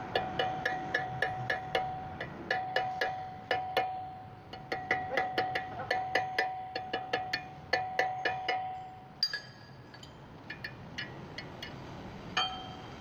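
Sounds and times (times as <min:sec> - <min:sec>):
hammer striking metal punch: 0:00.0 - 0:09.7.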